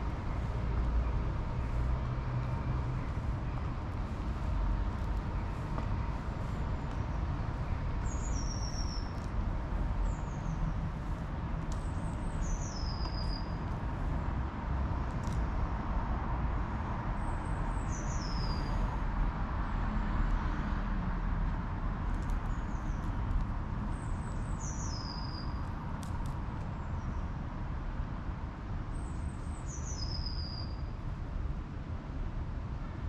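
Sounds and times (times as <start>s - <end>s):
songbird singing: 2.4s - 13.7s, 17.2s - 18.8s, 23.9s - 25.6s, 29.0s - 30.8s.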